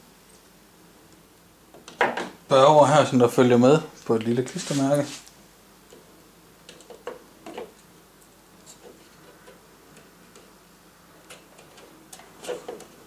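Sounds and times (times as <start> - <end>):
clicks and taps handling plastic fan: 5.9 - 7.9, 8.6 - 10.6, 11.2 - 13.0.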